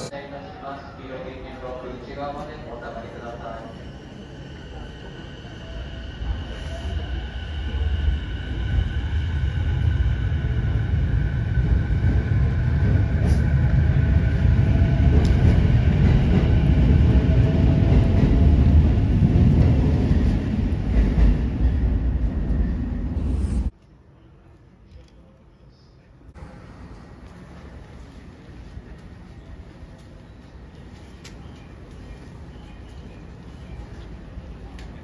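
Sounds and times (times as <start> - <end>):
train wheels rumbling on rail: 4.5 - 23.7.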